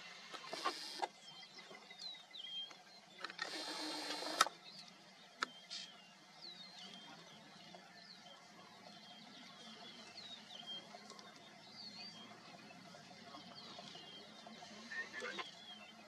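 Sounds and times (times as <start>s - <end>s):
lens zoom motor whirring: 0.4s - 1.1s, 3.2s - 4.6s
sharp clicks: 3.2s - 5.6s.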